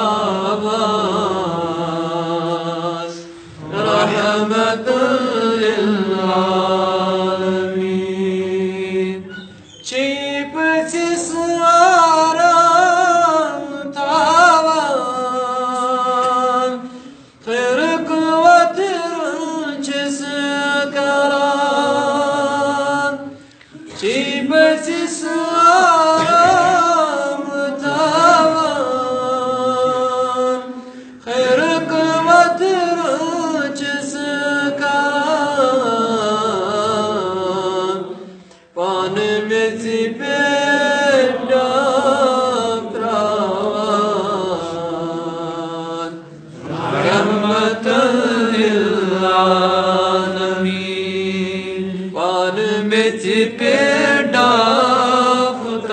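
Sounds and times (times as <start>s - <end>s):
man singing unaccompanied: 3.8s - 23.4s, 24.0s - 38.2s, 38.8s - 46.3s, 46.9s - 55.9s.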